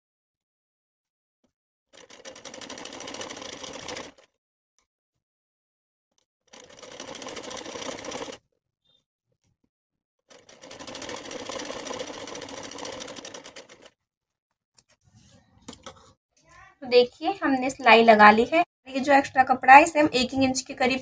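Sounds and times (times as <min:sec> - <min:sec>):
sewing machine stitching: 0:02.0 - 0:04.3, 0:06.5 - 0:08.4, 0:10.3 - 0:14.0.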